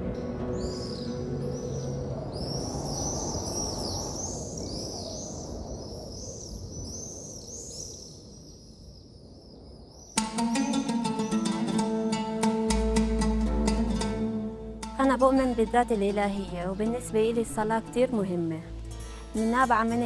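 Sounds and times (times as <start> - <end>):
birds chirping: 0.2 - 8.7
plucked string instrument: 10.2 - 20.0.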